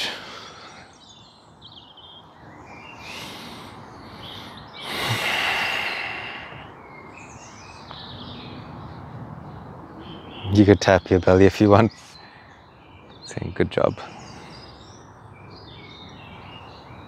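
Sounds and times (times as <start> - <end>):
birds chirping: 0.0 - 17.0
person exhaling heavily: 3.0 - 6.7.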